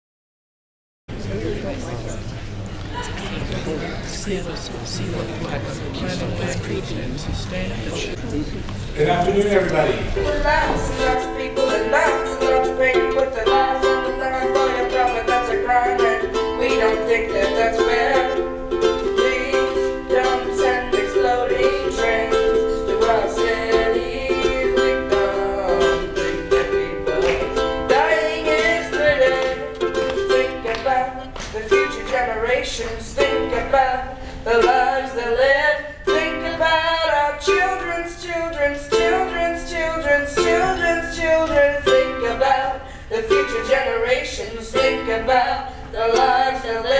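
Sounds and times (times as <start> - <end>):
ukulele strumming: 10.0 - 46.9
person singing: 10.1 - 46.9.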